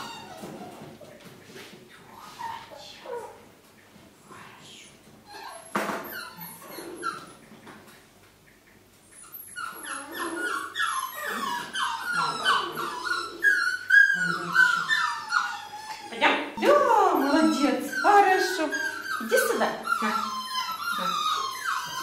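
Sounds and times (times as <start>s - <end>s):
dog whining and yipping: 0.0s - 0.9s, 5.3s - 7.4s, 9.2s - 22.0s.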